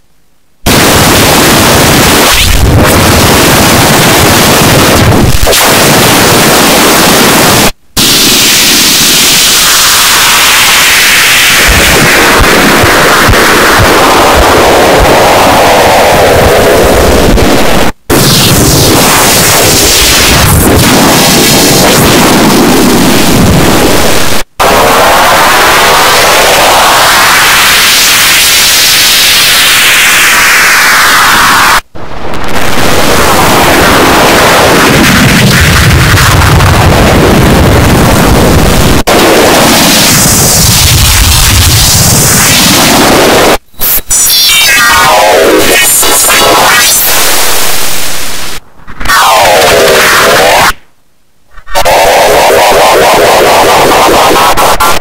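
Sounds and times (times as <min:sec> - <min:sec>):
harsh synthesized noise: 0:00.6 - 0:55.0
dense hiss-like synthesized noise: 0:39.1 - 0:50.7.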